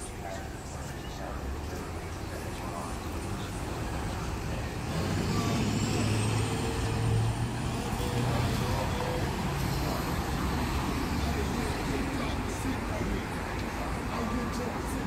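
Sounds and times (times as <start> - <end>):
truck engine rumbling: 0.0 - 15.0.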